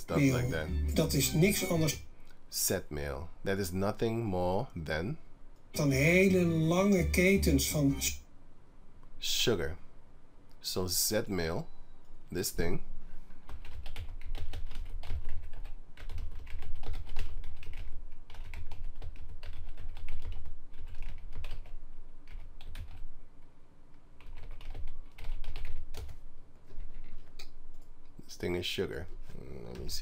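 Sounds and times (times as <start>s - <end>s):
computer keyboard typing: 13.5s - 23.1s, 24.2s - 27.8s.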